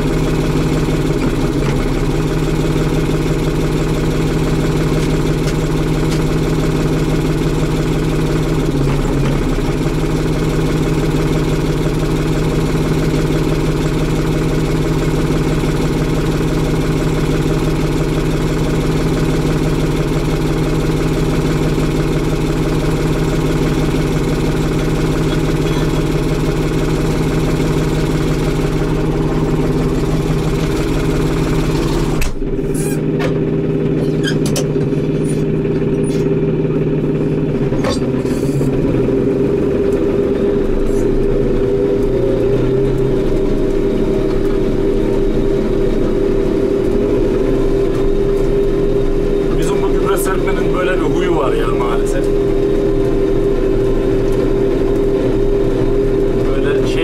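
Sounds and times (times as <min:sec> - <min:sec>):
tractor diesel engine hum: 0:00.0 - 0:57.0.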